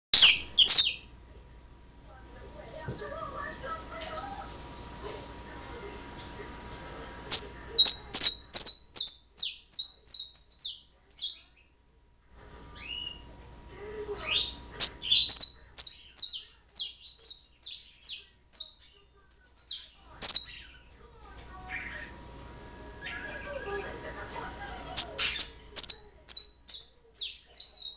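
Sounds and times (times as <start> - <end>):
canary chirping: 0.2 - 1.1, 7.3 - 11.8, 12.8 - 13.3, 14.2 - 22.2, 22.9 - 27.9.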